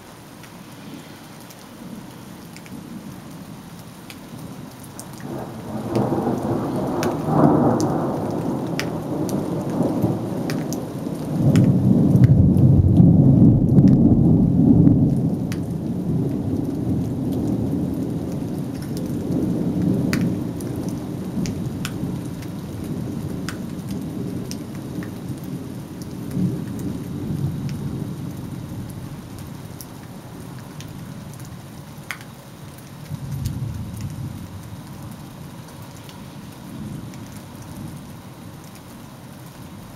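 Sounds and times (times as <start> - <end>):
steady rain: 0.0 - 39.9
raindrops tapping: 0.4 - 39.9
thunder rumbling: 5.2 - 29.4.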